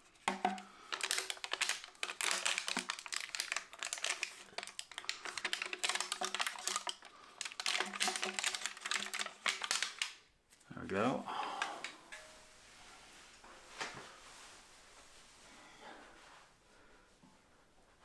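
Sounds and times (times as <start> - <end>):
plastic crinkling: 0.0 - 10.2.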